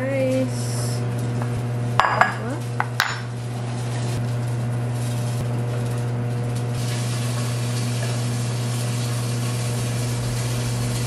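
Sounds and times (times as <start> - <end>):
dishes clinking: 2.0 - 3.3
steady low hum: 6.4 - 11.0.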